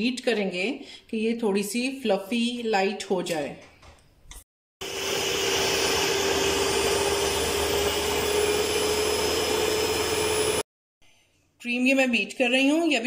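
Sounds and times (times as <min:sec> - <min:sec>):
stand mixer motor whine: 0:04.8 - 0:10.7.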